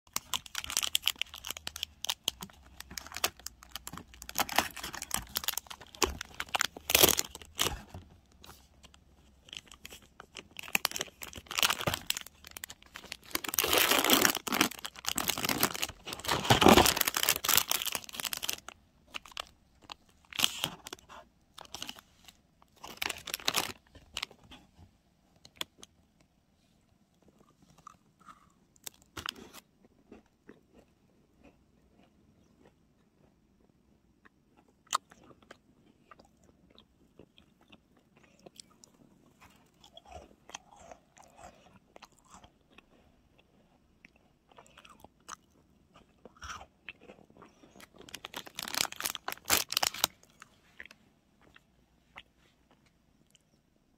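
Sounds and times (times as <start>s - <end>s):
paper and plastic wrap crinkling: 0.1s - 8.6s, 9.5s - 24.4s, 48.0s - 50.3s.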